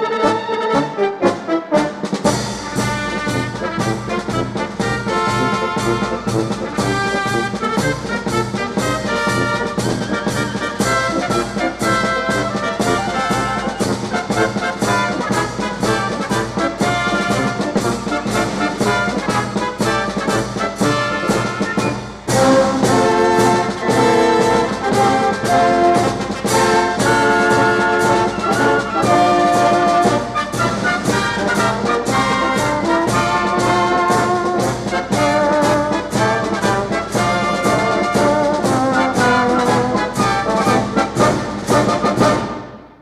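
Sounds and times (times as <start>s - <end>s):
brass music with steady beat: 0.0s - 43.0s.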